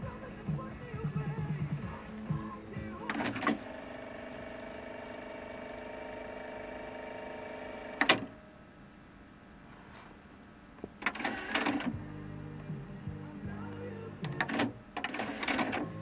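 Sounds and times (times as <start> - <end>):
tape rewinding whirr: 1.5 - 8.3, 11.0 - 12.1, 13.9 - 16.0.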